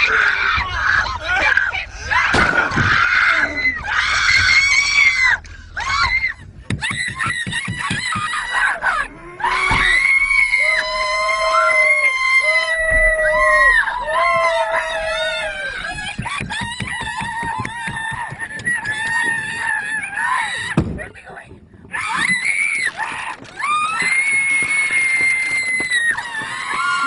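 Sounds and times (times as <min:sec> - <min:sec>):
passengers screaming: 0:00.0 - 0:20.9, 0:21.9 - 0:27.0.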